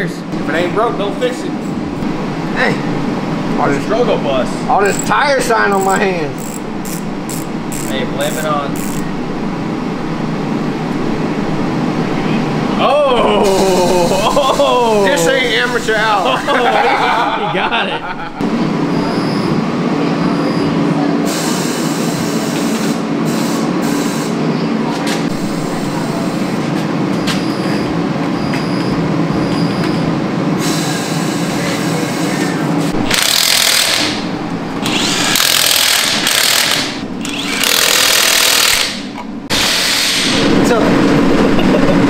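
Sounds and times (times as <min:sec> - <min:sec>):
machine motor humming: 0:00.3 - 0:18.7, 0:33.0 - 0:42.0
impact wrench bursts: 0:04.8 - 0:05.2, 0:05.8 - 0:09.1, 0:33.0 - 0:40.4.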